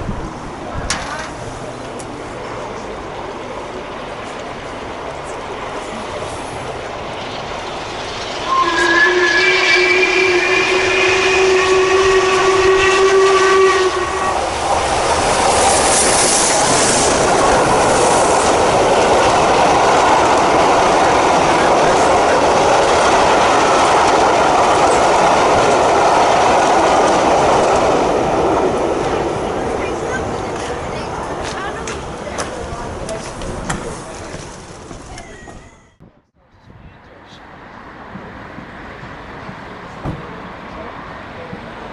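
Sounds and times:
coach wheels rumbling on rail: 0.0s - 41.9s
steam hiss: 5.8s - 18.8s
steam locomotive whistle: 8.4s - 14.6s.

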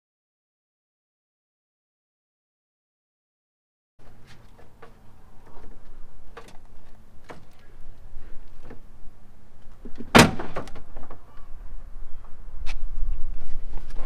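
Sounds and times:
loud sharp plastic crack: 10.0s - 10.9s.

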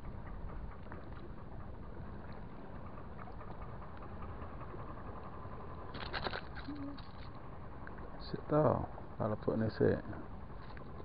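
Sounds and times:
sea noise: 0.0s - 11.0s.

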